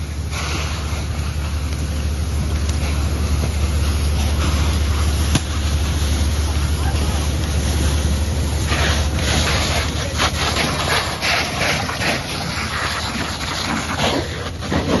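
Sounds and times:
fire hose jet spraying water: 0.0 - 15.0
low rumble: 0.0 - 15.0.

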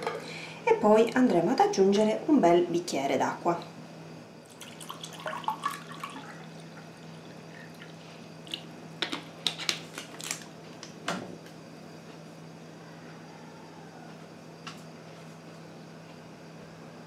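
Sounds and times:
water poured into saucepan: 4.5 - 7.7.

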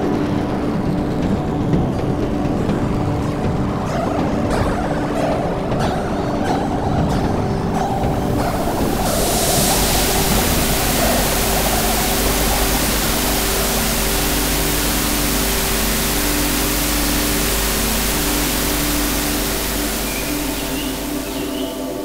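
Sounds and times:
white noise wash: 7.7 - 22.0
faint sustained low tones: 8.6 - 22.0.

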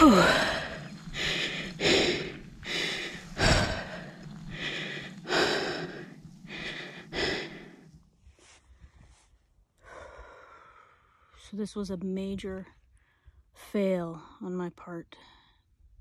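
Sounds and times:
person panting hard: 0.0 - 7.8.

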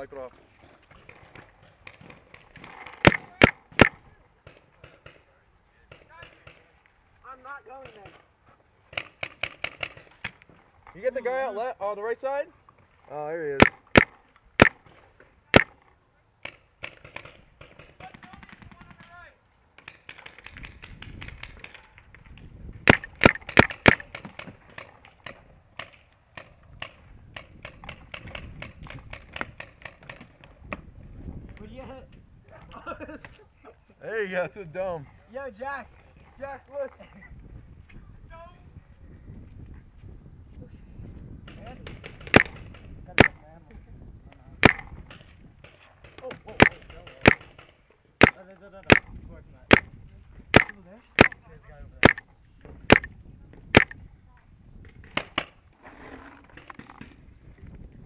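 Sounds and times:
distant paintball pops: 3.0 - 5.2, 13.6 - 14.8, 15.6 - 15.8, 22.9 - 30.8, 41.9 - 43.4, 44.6 - 45.2, 46.0 - 49.1, 49.7 - 49.9, 50.5 - 51.4, 52.0 - 52.2, 52.9 - 53.1, 53.7 - 54.0
paintball marker loud cracks: 3.0 - 5.2, 13.6 - 14.8, 15.5 - 15.8, 22.8 - 30.2, 41.9 - 43.4, 44.6 - 45.2, 46.0 - 49.1, 49.7 - 49.9, 50.5 - 51.4, 52.0 - 52.2, 52.9 - 53.1, 53.7 - 54.0.

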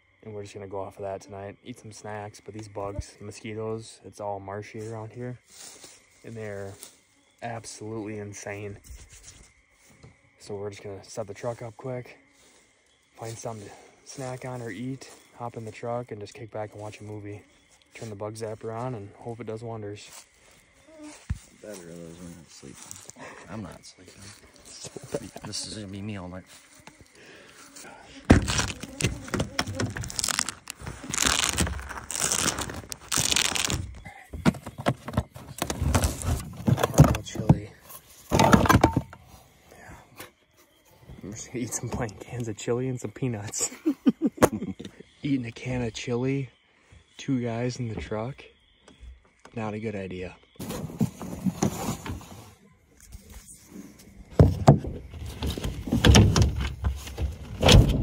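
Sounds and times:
bags rustling and crinkling: 28.2 - 37.2.

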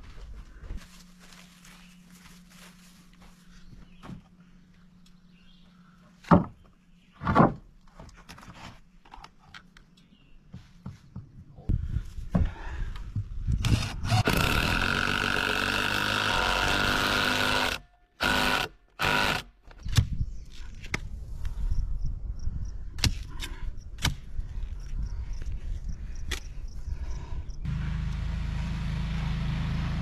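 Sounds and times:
handheld power tool running: 13.6 - 19.5.

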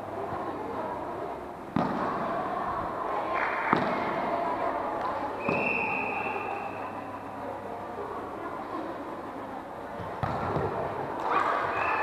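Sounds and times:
people chattering: 0.0 - 12.0.

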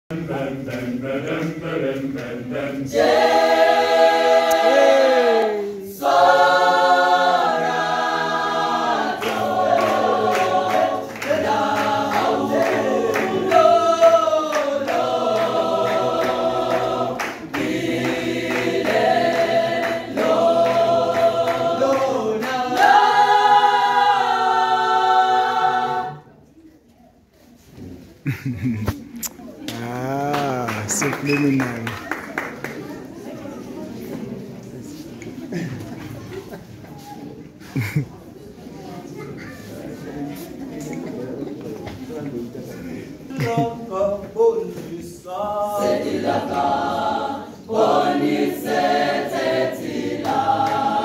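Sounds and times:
choir singing a cappella: 0.1 - 26.5, 42.7 - 51.0
rhythmic handclaps: 0.2 - 5.1, 8.4 - 23.8, 29.7 - 33.0, 47.8 - 51.0.

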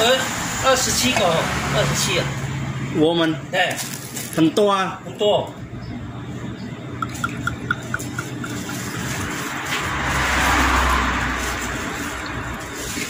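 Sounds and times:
liquid pouring into cup: 7.0 - 9.3
bottle glugging: 7.0 - 9.4.

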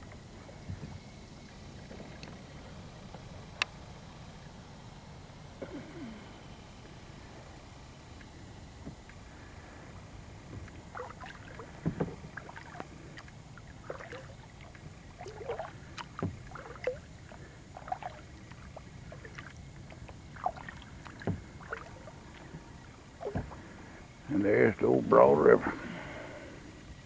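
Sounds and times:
paddle splashing in water: 10.4 - 24.0
paddle knocks: 10.5 - 12.6, 20.4 - 22.6, 23.2 - 23.6.

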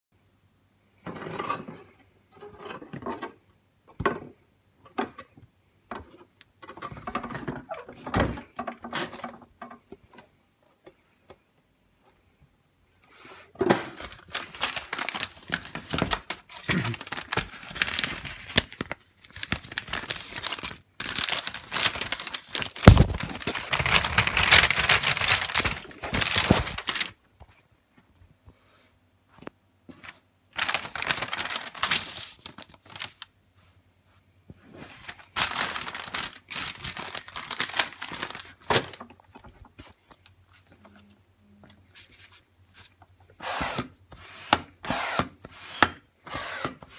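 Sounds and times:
paper and plastic crinkling: 13.6 - 27.2, 29.9 - 33.3, 34.7 - 43.0.

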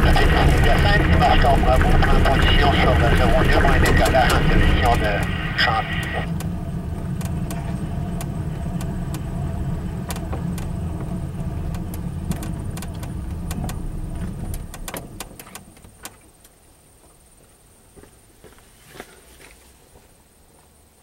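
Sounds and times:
light aircraft engine idling: 0.0 - 16.5
rattles and clicks: 6.3 - 9.3, 10.0 - 16.2.

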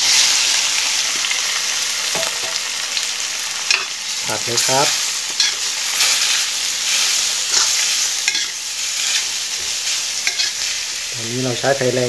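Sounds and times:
food sizzling in a wok: 0.0 - 12.0
metal spatula scraping pan: 5.3 - 10.8.

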